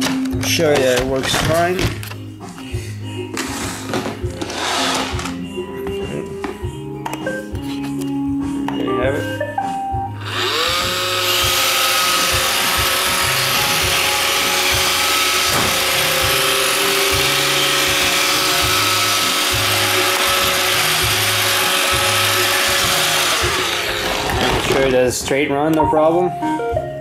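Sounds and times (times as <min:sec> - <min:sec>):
robot vacuum motor whine: 0:10.2 - 0:24.8.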